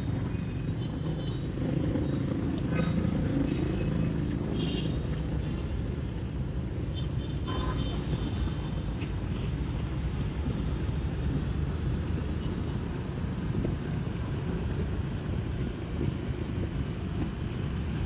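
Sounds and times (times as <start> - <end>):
motorbike and car engines passing: 0.0 - 6.7.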